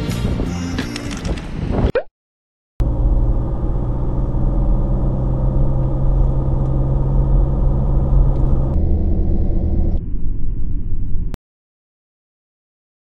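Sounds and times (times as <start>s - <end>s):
car engine hum: 2.8s - 10.0s
road rumble: 2.8s - 11.4s.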